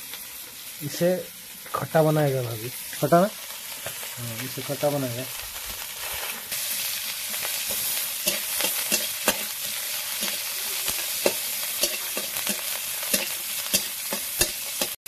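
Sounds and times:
onions sizzling in hot oil: 0.0s - 15.0s
metal spatula scraping pan: 7.7s - 15.0s.

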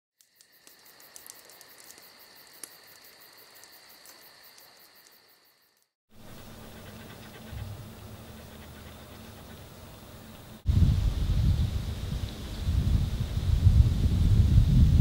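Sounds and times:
high-pitched insect chirring: 0.2s - 5.9s.

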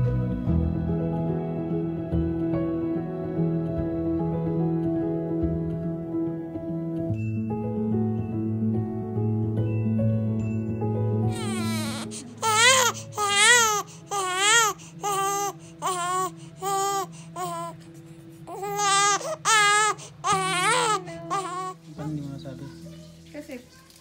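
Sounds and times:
soft background music: 0.0s - 24.0s
infant crying: 11.3s - 17.8s, 18.5s - 21.8s.

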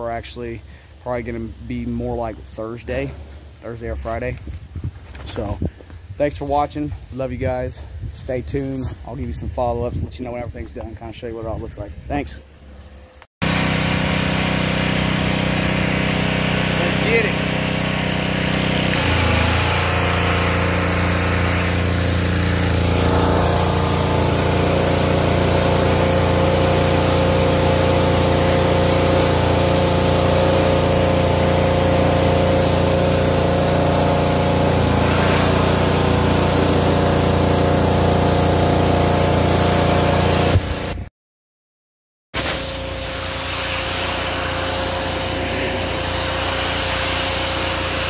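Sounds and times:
pressure washer drone: 12.7s - 41.1s, 42.4s - 48.0s
water jet hissing on siding: 13.4s - 41.0s, 42.4s - 48.0s.

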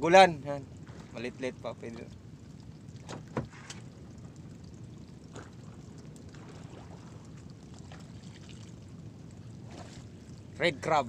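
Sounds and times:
water sloshing and trickling: 0.0s - 11.0s
light knocks in boat: 3.0s - 3.9s.

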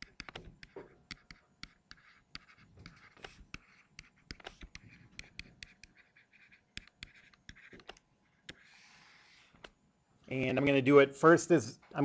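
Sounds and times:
stylus tapping on screen: 0.0s - 8.6s
stylus scratching on screen: 0.0s - 9.7s.

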